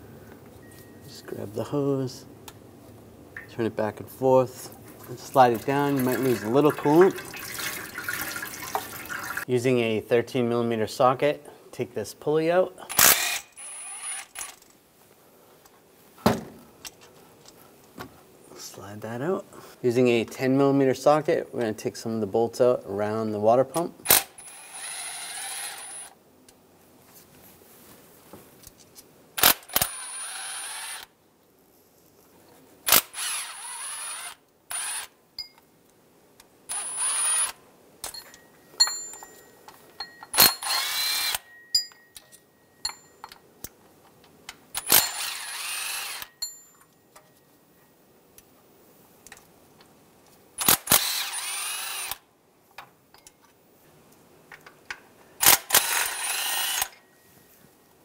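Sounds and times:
power tool whine: 33.0 - 35.1, 44.9 - 46.3, 55.6 - 56.9.

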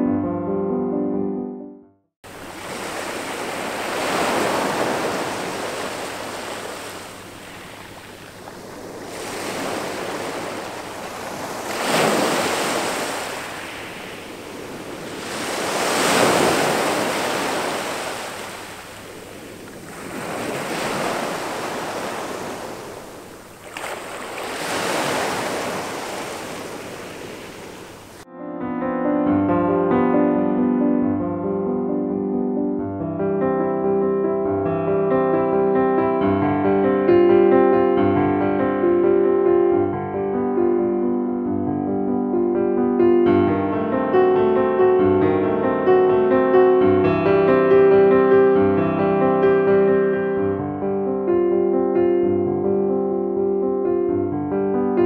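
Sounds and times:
waves breaking on pebble beach: 2.3 - 28.2.

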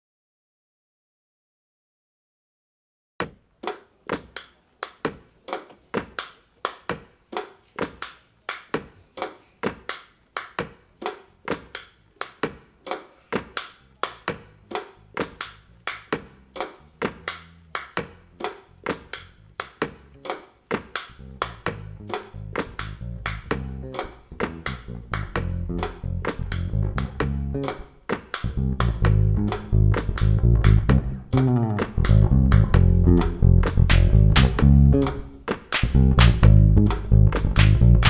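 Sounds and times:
percussive struck notes: 12.4 - 38.0.

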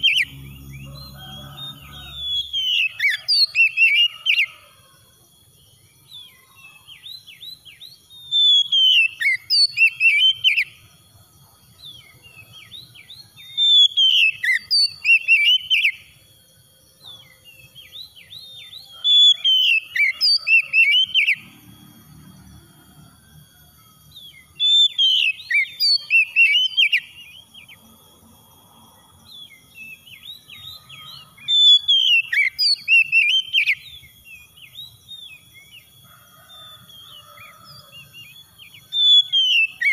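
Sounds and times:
soft bird chirps: 0.0 - 4.3
bird singing: 0.0 - 39.9.

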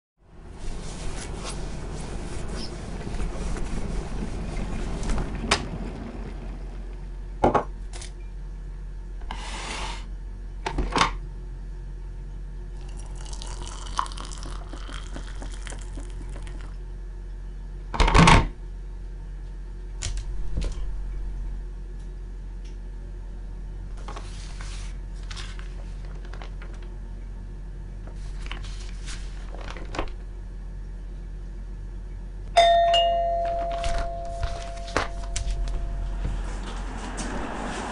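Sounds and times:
water pouring into a mug: 12.8 - 16.7.

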